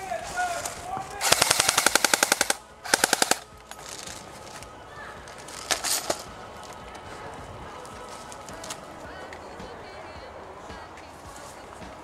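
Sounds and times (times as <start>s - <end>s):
airsoft rifle automatic fire: 1.2s - 4.2s.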